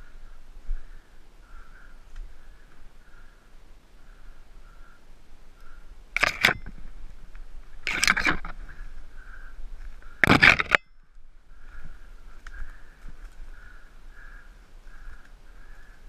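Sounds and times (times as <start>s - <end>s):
loud scraping noises: 6.2s - 6.7s, 7.8s - 8.9s, 10.2s - 10.8s.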